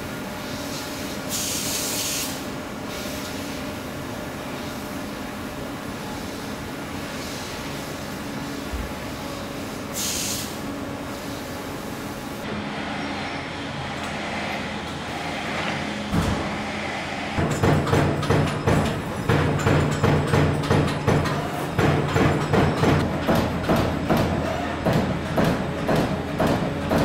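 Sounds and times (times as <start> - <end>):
laser cutter hiss: 0.4 - 3.6, 9.4 - 11.4
machine hum: 12.3 - 25.1
punch press punching metal sheet: 17.4 - 27.0.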